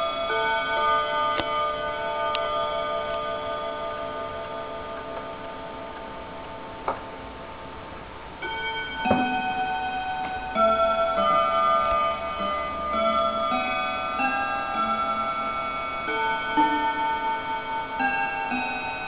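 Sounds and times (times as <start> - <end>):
chime clock rods ringing: 0.0 - 7.2, 8.3 - 19.0
hammers striking chime melody: 8.4 - 19.0.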